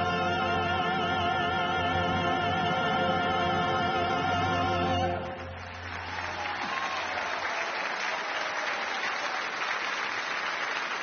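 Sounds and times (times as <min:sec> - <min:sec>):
studio audience applauding: 0:05.4 - 0:11.0.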